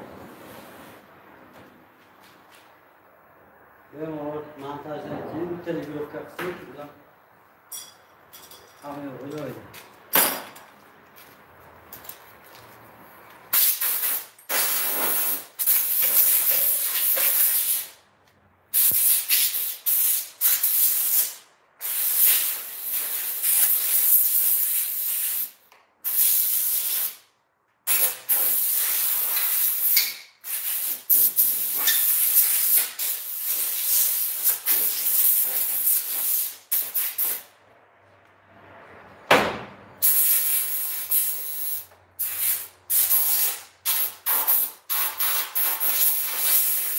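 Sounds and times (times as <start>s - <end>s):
compressed air hissing from tool: 13.5s - 18.0s, 18.7s - 27.2s, 27.9s - 37.5s, 40.0s - 46.9s.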